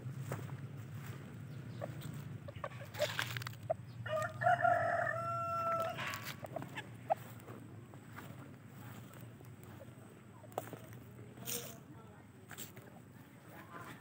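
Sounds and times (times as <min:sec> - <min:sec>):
rooster crowing: 0:04.0 - 0:06.4.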